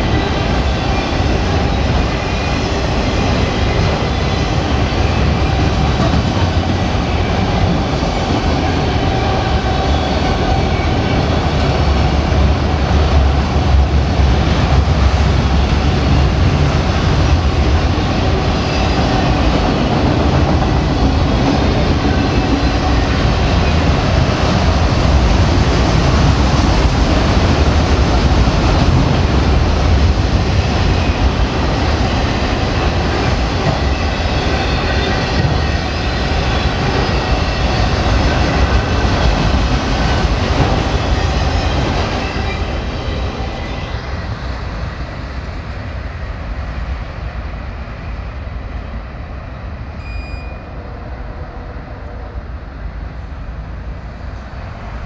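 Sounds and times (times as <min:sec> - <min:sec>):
freight train rumble and wheel clatter: 0:00.0 - 0:55.0.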